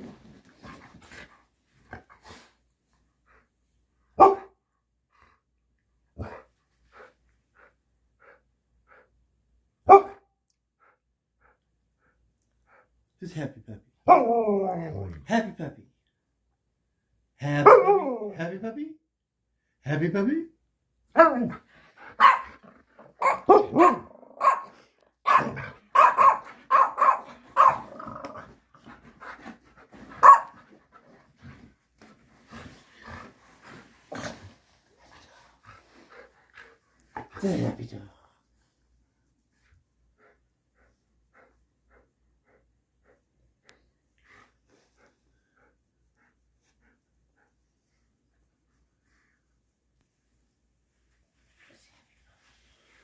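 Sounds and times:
dog barking and woofing: 0:04.2 - 0:04.6, 0:09.8 - 0:10.2, 0:14.0 - 0:15.0, 0:17.6 - 0:18.4, 0:21.1 - 0:28.4, 0:30.2 - 0:30.6.

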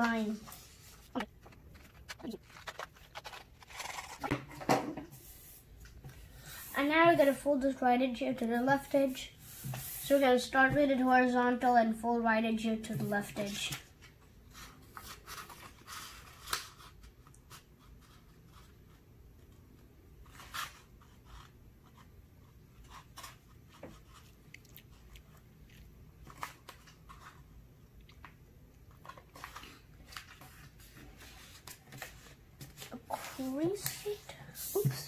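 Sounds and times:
paper rustling and crinkling: 0:00.0 - 0:04.7, 0:13.1 - 0:22.1, 0:25.7 - 0:27.6, 0:28.2 - 0:35.0.

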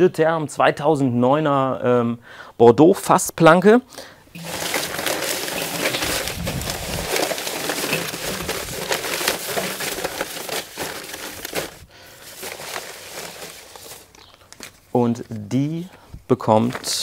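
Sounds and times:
paper slips rustling and crackling: 0:04.4 - 0:15.5.

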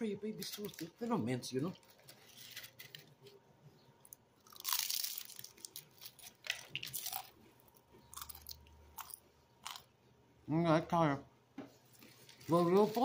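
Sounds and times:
person chewing crunchy food: 0:04.0 - 0:10.0.

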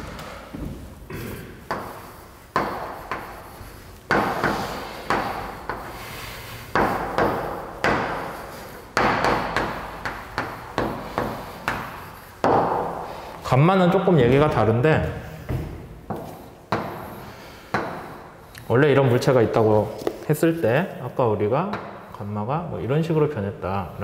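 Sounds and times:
chalk writing on blackboard: 0:01.7 - 0:12.6.

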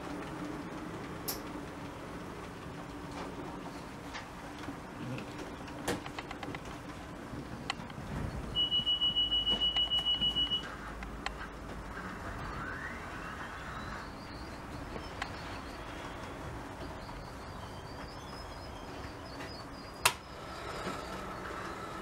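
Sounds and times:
high electronic beeping: 0:08.4 - 0:10.7
faint rising whistle: 0:12.4 - 0:16.4.

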